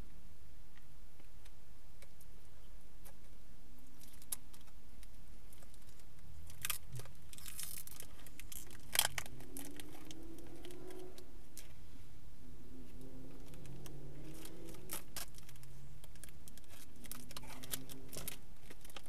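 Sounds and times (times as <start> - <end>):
low steady cabin hum: 0.0 - 19.0
crinkling rustle: 3.0 - 11.9, 12.8 - 19.0.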